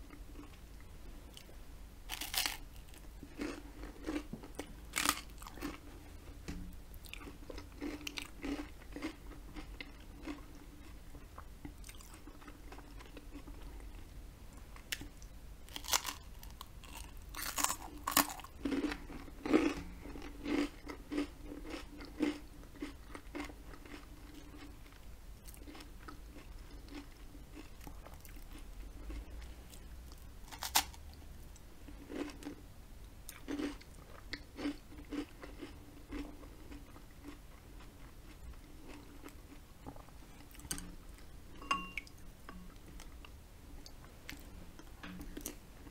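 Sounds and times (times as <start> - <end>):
chewing crunchy toast: 2.1 - 6.0, 7.0 - 14.0, 14.8 - 31.0, 31.9 - 32.6, 33.3 - 41.0.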